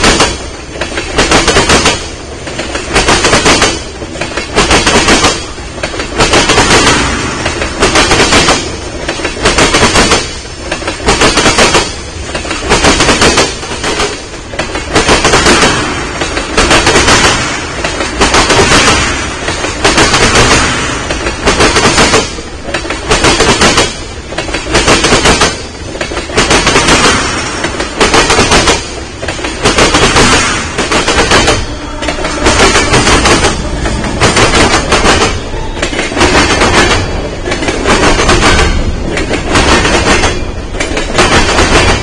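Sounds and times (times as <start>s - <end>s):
train wheels clattering over track: 0.0s - 42.0s.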